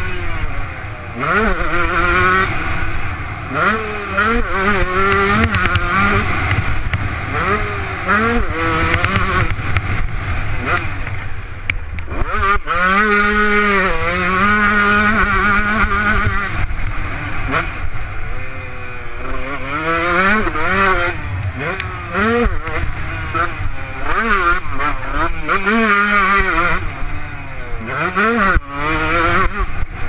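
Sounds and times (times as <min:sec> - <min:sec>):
motocross engine revving: 0:00.0 - 0:30.0.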